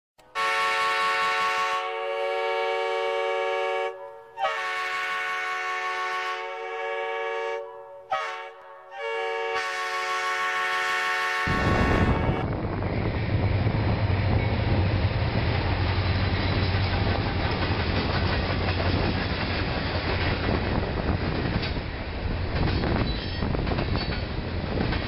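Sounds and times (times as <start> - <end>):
locomotive air horn blasts: 0.2 - 12.5
moving train rumble: 8.1 - 25.0.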